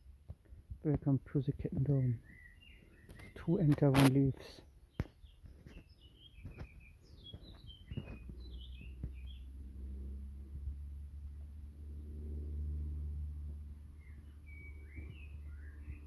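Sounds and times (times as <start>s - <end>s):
birds chirping: 0.9s - 9.8s, 13.8s - 16.0s
low steady hum: 7.9s - 16.0s.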